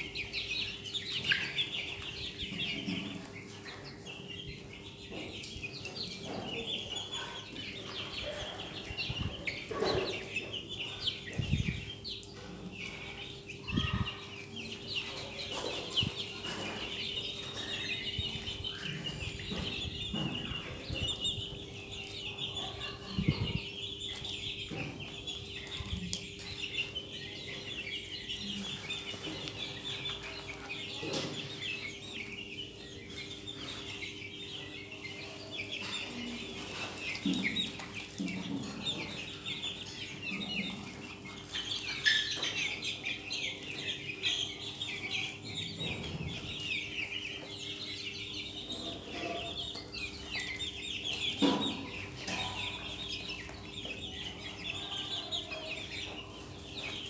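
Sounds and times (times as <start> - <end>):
chicken clucks: 0.0 - 57.0
chicks chirping and peeping: 0.0 - 57.0.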